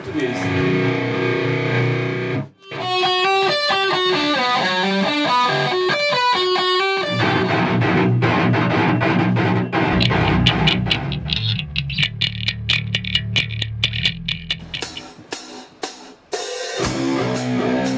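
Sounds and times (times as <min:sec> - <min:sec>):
heavy distorted guitars and bass: 0:00.0 - 0:04.2, 0:07.0 - 0:15.6, 0:16.8 - 0:17.9
clean electric guitar melody: 0:00.4 - 0:15.2.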